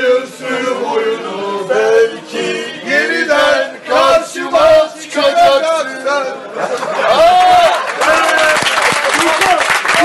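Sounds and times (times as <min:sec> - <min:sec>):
men singing: 0:00.0 - 0:06.5.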